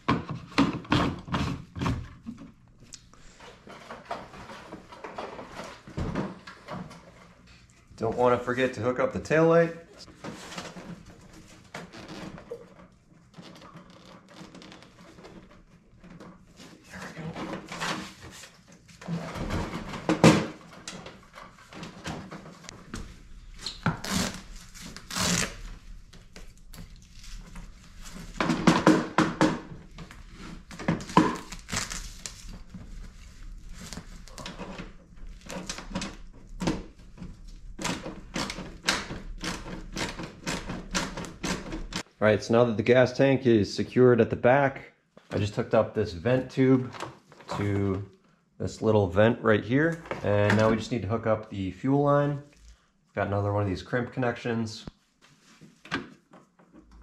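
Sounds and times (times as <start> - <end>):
knocks and clicks of plastic parts: 28.4 - 29.8.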